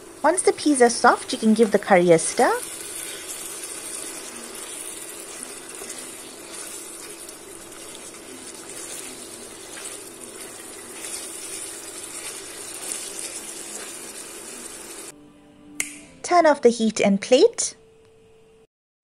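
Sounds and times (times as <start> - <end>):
curry sizzling in a pot: 0.0 - 15.1
spoon scraping a pot: 2.5 - 15.1.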